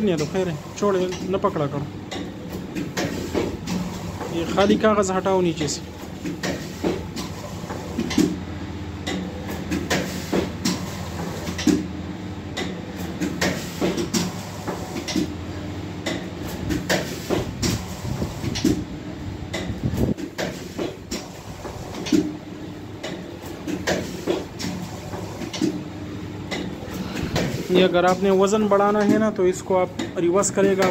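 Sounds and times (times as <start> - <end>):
packing machine clacks: 26.5 - 30.9.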